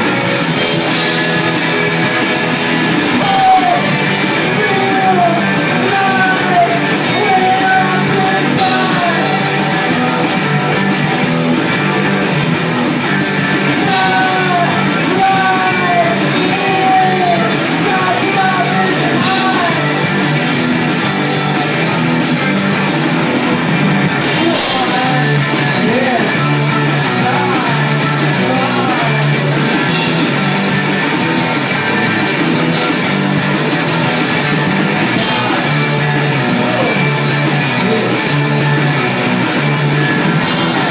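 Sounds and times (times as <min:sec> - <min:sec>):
drum kit: 0:00.0 - 0:40.9
electric guitars: 0:00.0 - 0:40.9
person singing: 0:03.0 - 0:11.4, 0:13.7 - 0:21.8, 0:24.2 - 0:30.7, 0:35.0 - 0:39.8, 0:40.4 - 0:40.9.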